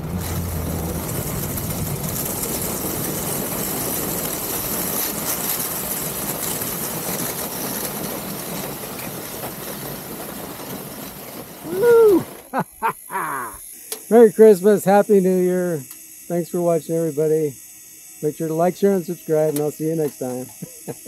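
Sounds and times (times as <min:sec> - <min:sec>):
ski runners hissing over snow: 0:01.0 - 0:13.1.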